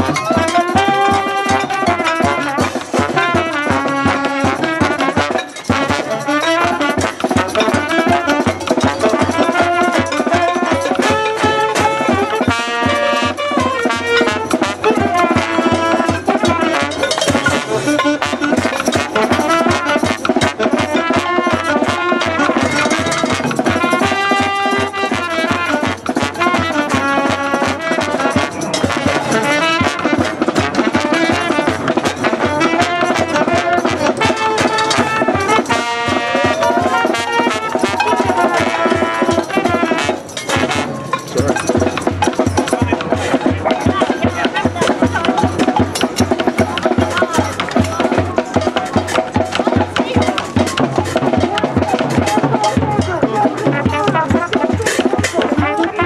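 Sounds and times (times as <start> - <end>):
brass instruments playing: 0.0 - 56.0
steady drumming: 0.0 - 56.0.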